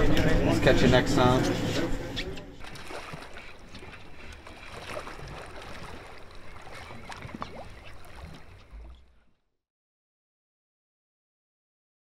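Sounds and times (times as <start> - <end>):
river water lapping: 0.4 - 9.5.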